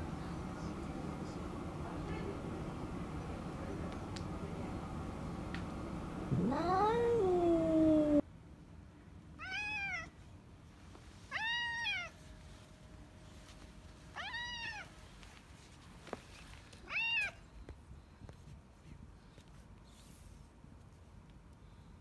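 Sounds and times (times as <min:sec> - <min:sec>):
cat meowing: 0:06.3 - 0:08.2, 0:09.4 - 0:10.1, 0:11.3 - 0:12.1, 0:14.2 - 0:14.9.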